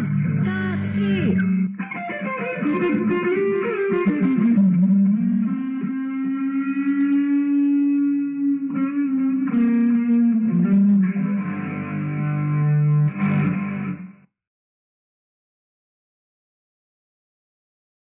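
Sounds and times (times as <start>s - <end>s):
guitar music: 0.0s - 14.3s.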